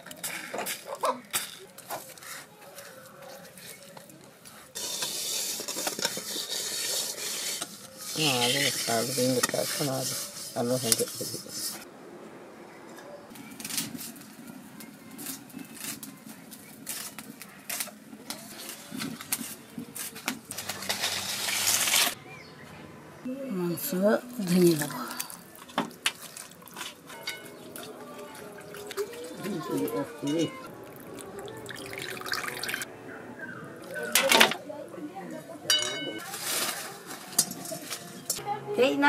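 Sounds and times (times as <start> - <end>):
stone roller scraping on stone: 4.8 - 11.8, 16.8 - 22.2
utensils clinking: 24.4 - 32.9, 35.7 - 38.4.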